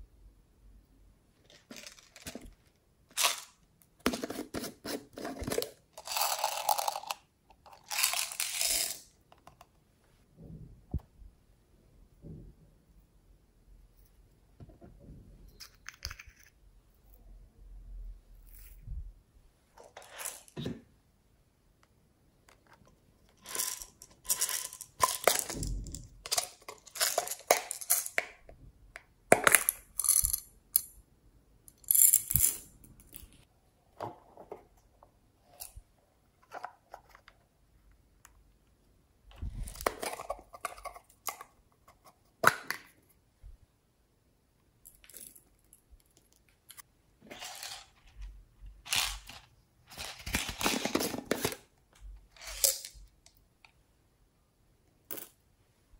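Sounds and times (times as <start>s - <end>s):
beads clicking and rattling: 1.4s - 3.5s, 6.0s - 9.0s, 23.4s - 25.6s, 26.2s - 28.2s.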